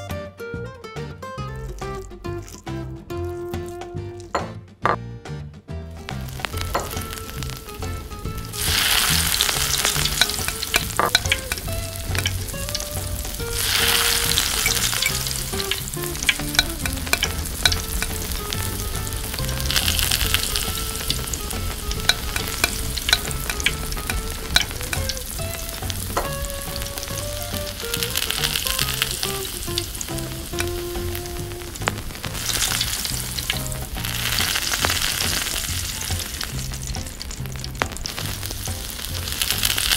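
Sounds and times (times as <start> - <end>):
vegetables sizzling in oil: 1.6 - 4.4, 6.0 - 39.9.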